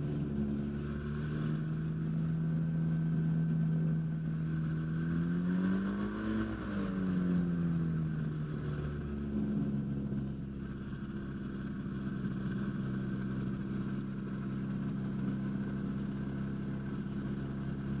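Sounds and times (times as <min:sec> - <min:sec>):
light aircraft engine running: 0:00.0 - 0:18.0.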